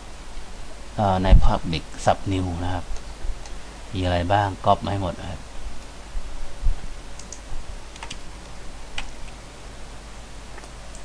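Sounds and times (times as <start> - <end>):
low room hum: 0.0 - 11.0
computer keys clicking: 7.2 - 8.2, 9.0 - 9.4.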